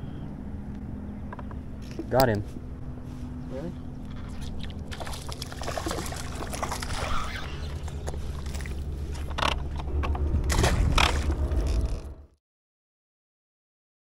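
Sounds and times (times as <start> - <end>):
steady low rumble: 0.0 - 12.3
fish splashing in water: 4.1 - 9.0, 10.5 - 11.8.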